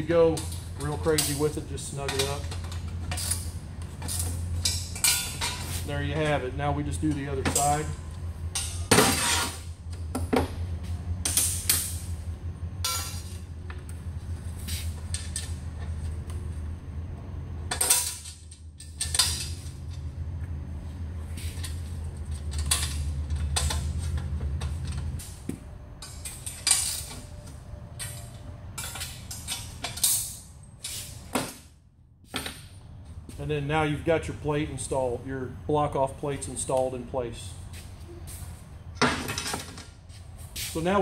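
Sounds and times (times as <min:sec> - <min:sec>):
metal parts clinking and clanking: 0:00.0 - 0:09.7, 0:12.8 - 0:13.8, 0:14.7 - 0:16.2, 0:17.7 - 0:20.1, 0:21.4 - 0:25.4, 0:26.0 - 0:31.6, 0:39.0 - 0:40.0.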